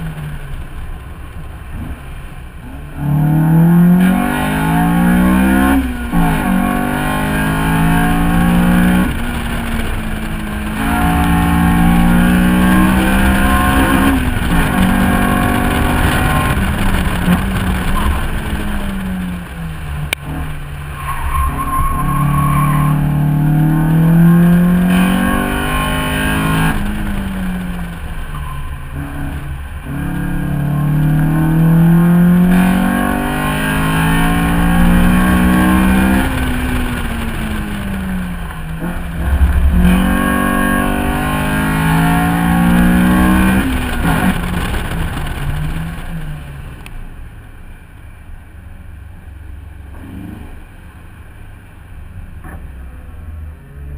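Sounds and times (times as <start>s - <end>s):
wind and tyre noise: 0.0s - 53.9s
car engine revving hard: 3.0s - 20.7s, 21.4s - 28.0s, 28.9s - 46.0s.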